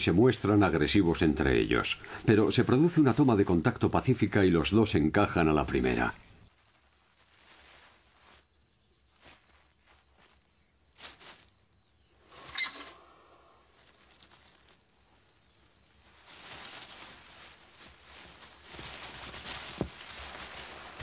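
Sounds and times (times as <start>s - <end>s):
scratching in sandy soil: 0.0s - 21.0s
scuffling in soil: 0.0s - 21.0s
hamster squeak: 12.5s - 12.9s.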